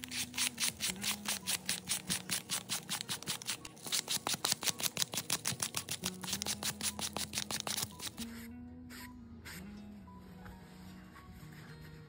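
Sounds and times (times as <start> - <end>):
sandpaper scratching leather: 0.0 - 9.0.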